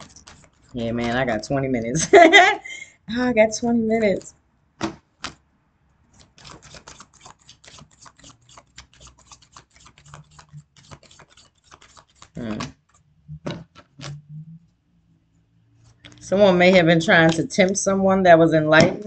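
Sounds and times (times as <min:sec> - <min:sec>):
cards being shuffled: 0:00.0 - 0:01.4, 0:04.0 - 0:05.4, 0:06.1 - 0:14.2
card taps: 0:04.8 - 0:05.4.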